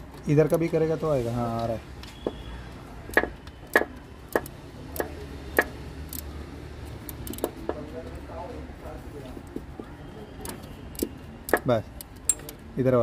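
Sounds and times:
socket wrench clicking: 3.1s - 6.3s, 7.0s - 7.8s, 10.4s - 12.6s.

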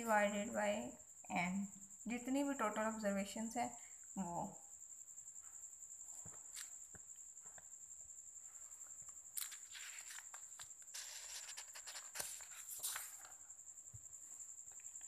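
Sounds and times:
faint high-pitched whine: 0.0s - 15.0s
paper rustling: 9.4s - 13.4s.

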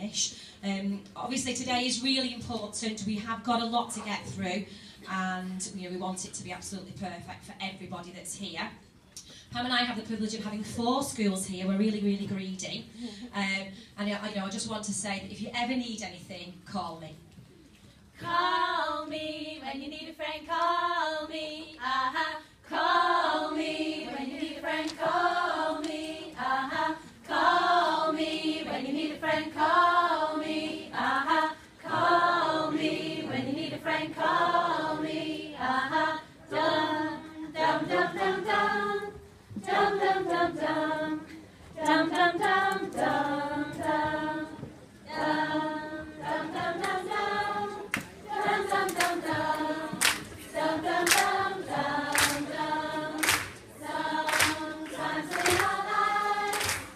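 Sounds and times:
women singing together: 18.2s - 56.9s.

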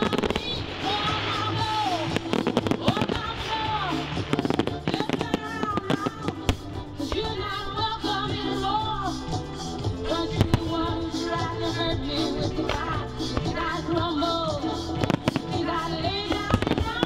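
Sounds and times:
fireworks bursting and crackling: 0.0s - 8.0s, 12.4s - 17.0s
song with singing over a beat: 0.0s - 17.0s.

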